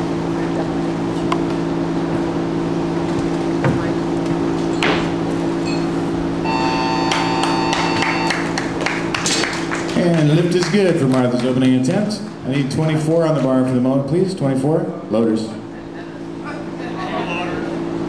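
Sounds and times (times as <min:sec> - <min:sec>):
steady low hum: 0:00.0 - 0:18.0
steady high tone: 0:06.4 - 0:08.6
scattered clapping: 0:07.1 - 0:12.0.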